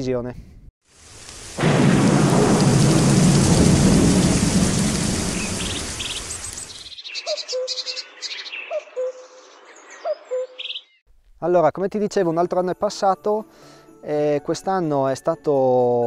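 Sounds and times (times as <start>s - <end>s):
rain hissing: 0.8s - 6.9s
thunder rumble: 1.0s - 6.8s
bird low call: 5.3s - 11.0s
high bird chirps: 5.3s - 11.0s.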